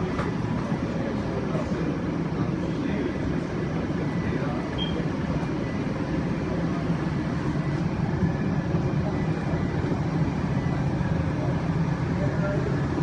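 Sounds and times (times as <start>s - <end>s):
airliner cabin drone: 0.0s - 13.0s.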